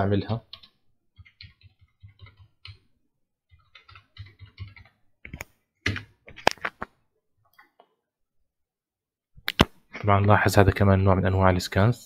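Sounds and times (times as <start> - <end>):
computer keyboard typing: 0.4 - 6.7.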